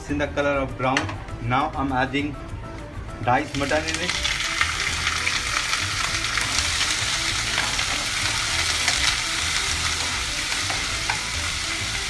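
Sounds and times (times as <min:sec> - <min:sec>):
meat sizzling in a frying pan: 0:03.4 - 0:12.0.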